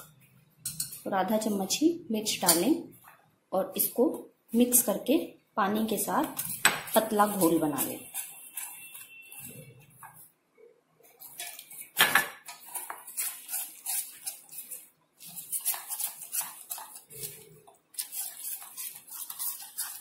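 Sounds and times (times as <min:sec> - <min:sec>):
metal spoon scraping steel bowl: 0:00.0 - 0:01.8, 0:06.2 - 0:10.2, 0:11.2 - 0:20.0.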